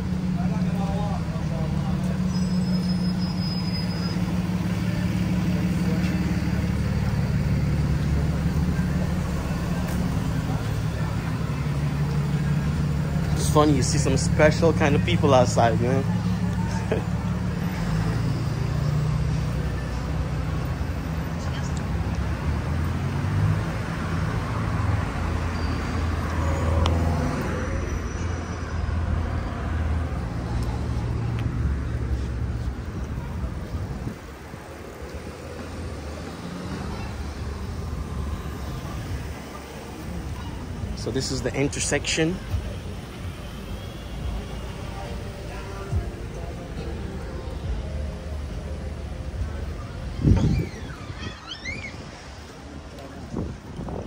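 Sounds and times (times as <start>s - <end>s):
vehicle engine running: 0.0s - 25.4s
low engine sound: 0.0s - 54.0s
street traffic: 0.0s - 54.0s.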